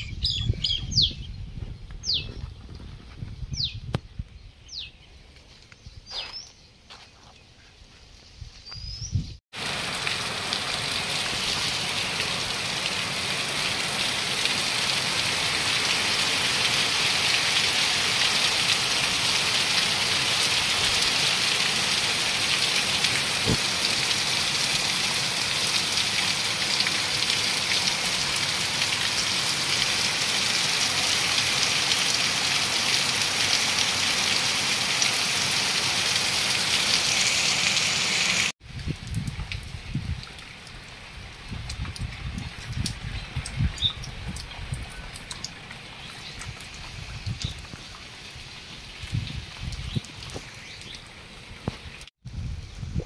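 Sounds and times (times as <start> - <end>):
bird chirps: 0.0 - 1.4, 2.0 - 2.5, 4.4 - 9.4
heavy rain on concrete: 9.5 - 52.7.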